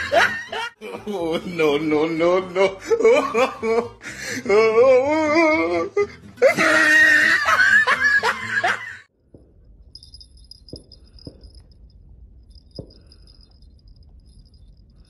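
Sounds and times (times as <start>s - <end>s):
small bells jingling: 9.7s - 15.0s.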